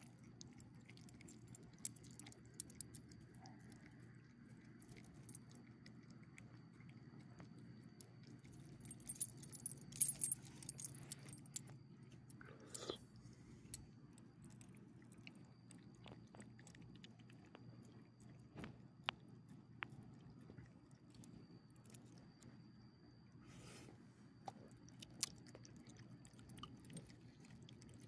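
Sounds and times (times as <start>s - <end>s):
dog chewing and licking: 0.0s - 9.4s, 14.3s - 22.2s, 24.5s - 28.0s
faint steady hum: 0.0s - 28.0s
dog tags jingling: 8.8s - 11.6s.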